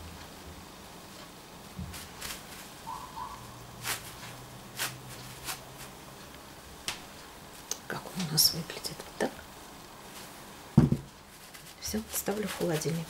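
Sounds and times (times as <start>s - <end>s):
cling film crinkling: 1.8s - 3.0s, 11.1s - 13.0s.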